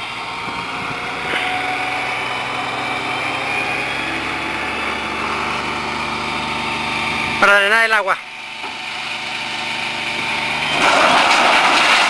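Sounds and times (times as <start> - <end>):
diesel truck engine running: 0.0 - 12.0.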